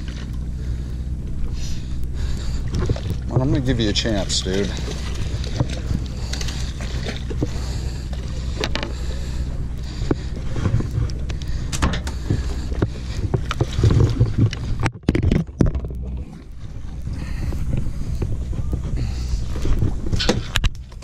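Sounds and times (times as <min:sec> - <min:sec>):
boat engine drone: 0:00.0 - 0:21.0
fishing rod and reel knocking: 0:02.7 - 0:09.2.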